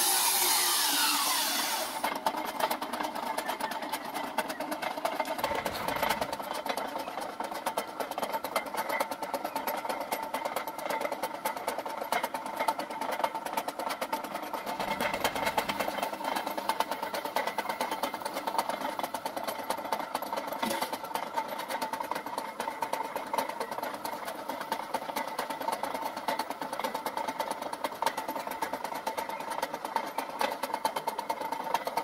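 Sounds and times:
steady machine whine: 0.0s - 2.2s
belt-driven generator rig clattering: 0.0s - 32.0s.

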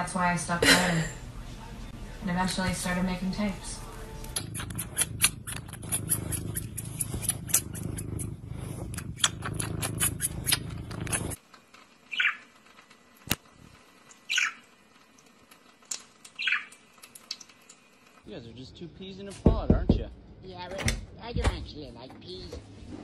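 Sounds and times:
cat purring: 2.5s - 11.4s
budgerigar chirps: 12.1s - 12.4s, 14.3s - 14.6s, 16.4s - 16.7s.

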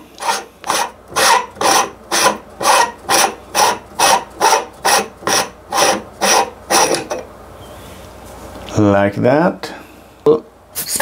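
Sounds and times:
threads turning by hand: 0.0s - 7.2s.

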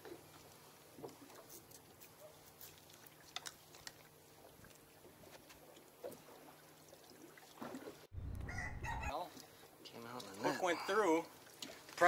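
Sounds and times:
faint clicks and knocks of fish handling: 1.0s - 6.2s.

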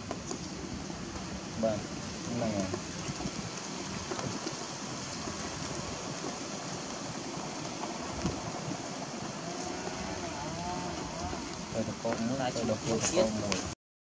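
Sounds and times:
outdoor background noise: 0.0s - 13.8s.

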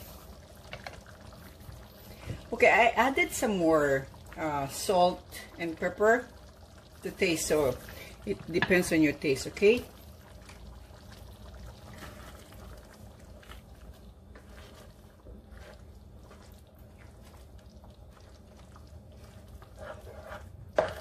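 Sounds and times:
spoon stirring sauce: 10.3s - 21.0s.

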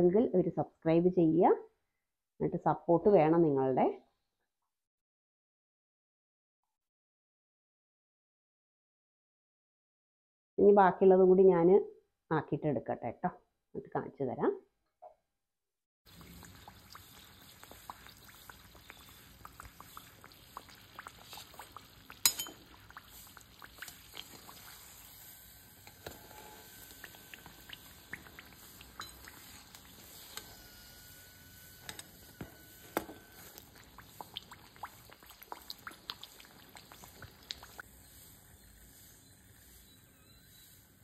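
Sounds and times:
deep-frying oil sizzling: 16.1s - 41.0s.

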